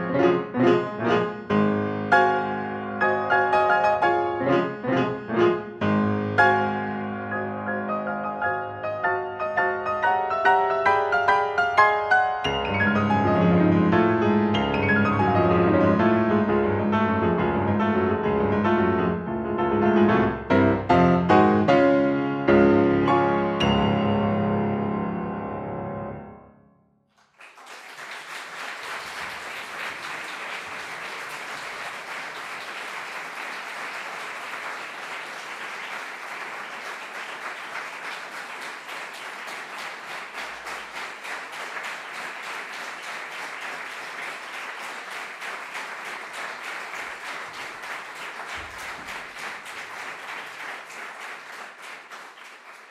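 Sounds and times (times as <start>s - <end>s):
piano chord: 12.2s - 26.7s
audience applause: 27.2s - 52.9s.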